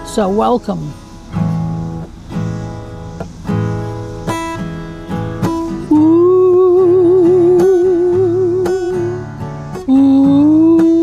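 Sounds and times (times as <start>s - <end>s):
acoustic guitar strumming: 0.0s - 11.0s
woman singing ooh: 5.9s - 11.0s.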